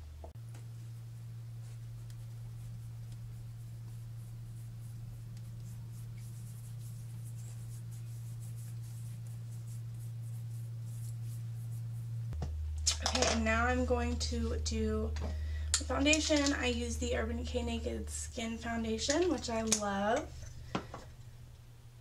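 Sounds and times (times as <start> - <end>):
steady low hum: 0.0 - 22.0
fingertips rubbing skin: 0.6 - 12.3.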